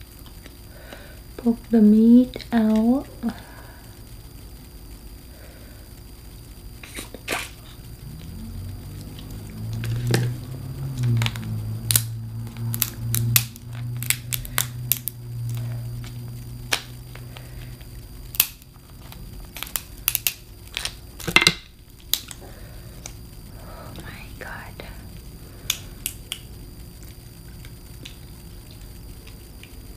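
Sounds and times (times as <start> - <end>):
low hum: 0.0 - 29.9
shellfish shells cracking: 9.1 - 22.4, 25.6 - 29.8.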